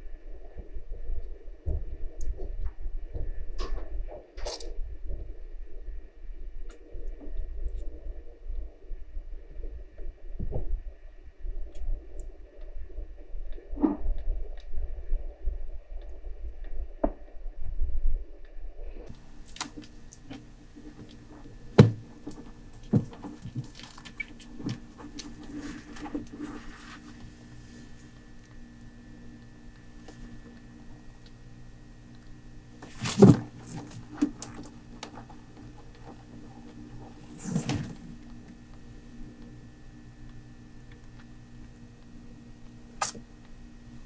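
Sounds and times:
steady low hum: 0:00.0 - 0:44.0
cloth rustling on plastic carrier: 0:19.2 - 0:28.1, 0:32.8 - 0:35.3
bump on plastic carrier: 0:21.8 - 0:22.1, 0:32.8 - 0:34.0.

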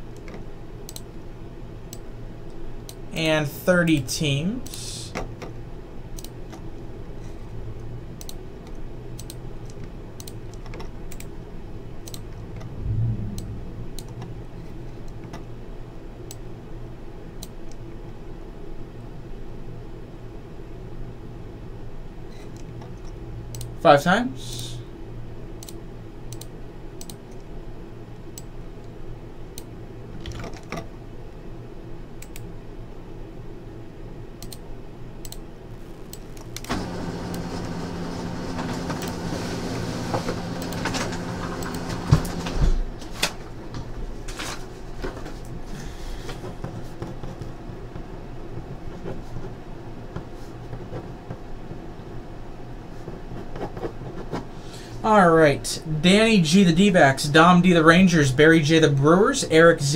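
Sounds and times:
loud whirring noise: 0:00.0 - 0:10.4, 0:11.0 - 0:19.8, 0:33.6 - 0:59.9
low room hum: 0:00.0 - 0:59.9.

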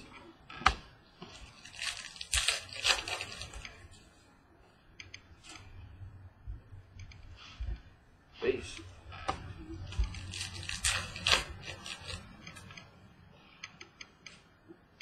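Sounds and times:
cards rustling: 0:00.0 - 0:04.2, 0:08.6 - 0:12.8.

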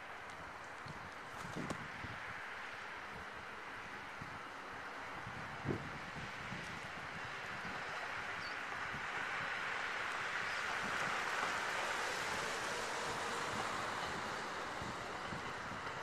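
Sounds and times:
train wheels on rails: 0:00.0 - 0:16.0
wind on microphone: 0:00.8 - 0:02.4, 0:03.1 - 0:09.6.

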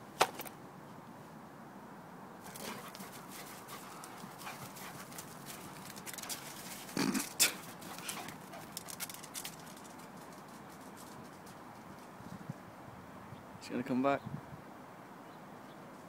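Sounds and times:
dog scuffing and clicking: 0:02.4 - 0:12.1.

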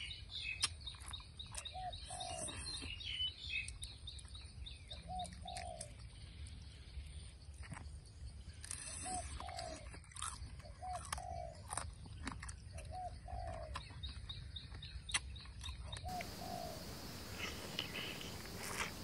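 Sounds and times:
dove cooing: 0:12.9 - 0:13.7, 0:16.1 - 0:19.0.

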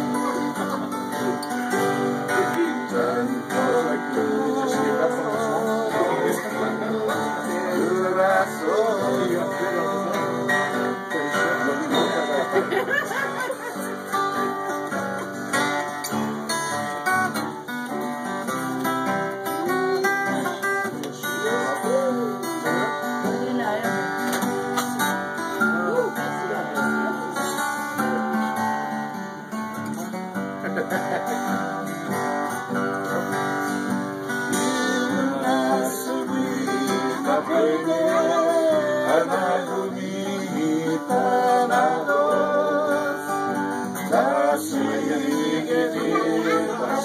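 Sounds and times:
man singing: 0:00.0 - 0:13.0, 0:19.6 - 0:24.8, 0:34.4 - 0:47.0
acoustic guitars playing: 0:00.0 - 0:47.0.

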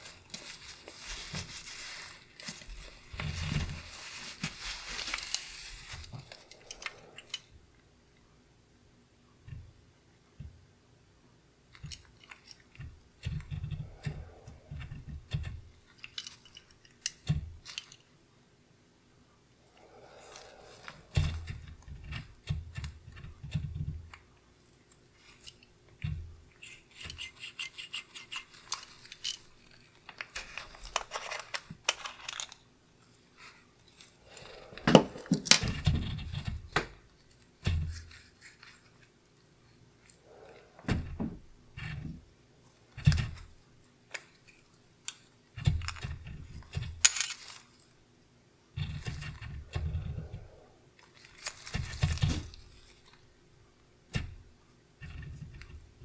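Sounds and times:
glove rubbing: 0:00.0 - 0:07.4, 0:19.7 - 0:22.8.

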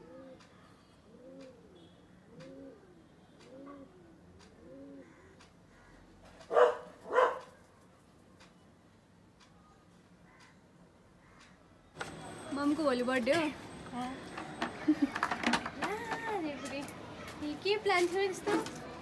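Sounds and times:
pigeon cooing: 0:00.0 - 0:07.3
dog barking loudly: 0:06.5 - 0:07.6.

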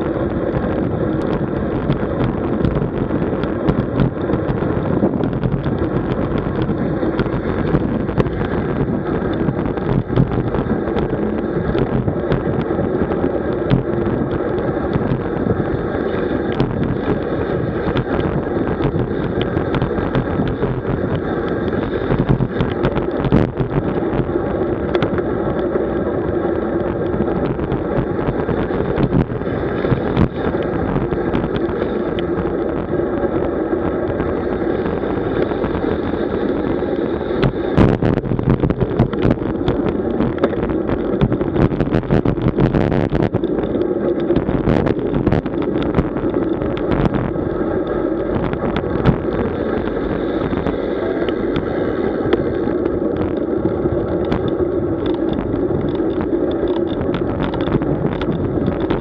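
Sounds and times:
bicycle rumble and wind noise: 0:00.0 - 0:59.0
sharp clicks and knocks: 0:37.4 - 0:53.5, 0:54.1 - 0:59.0.

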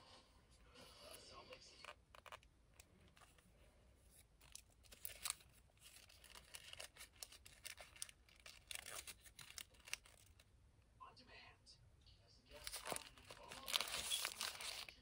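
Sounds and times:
paper wrapper crinkling: 0:01.8 - 0:03.5, 0:04.1 - 0:10.5, 0:12.5 - 0:15.0.

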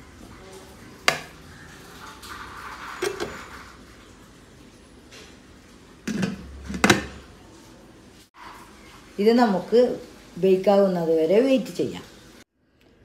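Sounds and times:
cake tin scraping and clinking: 0:02.2 - 0:03.7.

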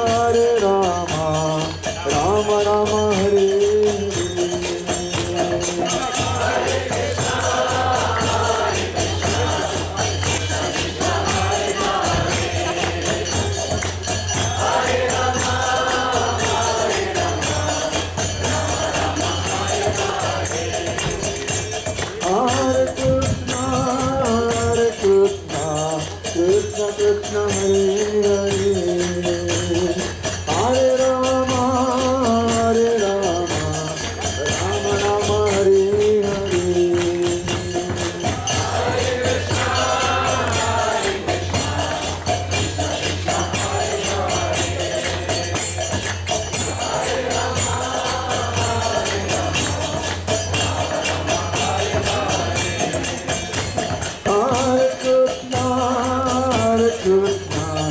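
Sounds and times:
small hand cymbals: 0:00.0 - 0:57.9
group chanting: 0:05.1 - 0:22.9, 0:36.3 - 0:54.8.

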